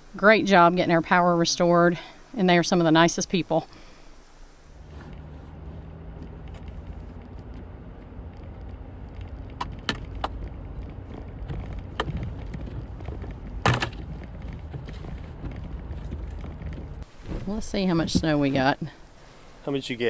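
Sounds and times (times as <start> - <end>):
car engine running: 4.7 - 18.9
sharp clicks: 6.2 - 14.1.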